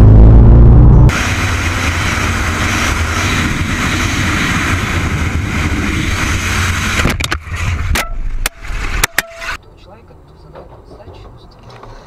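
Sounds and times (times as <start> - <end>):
wind rush: 0.0 - 9.1
motorcycle engine drone: 0.0 - 9.6.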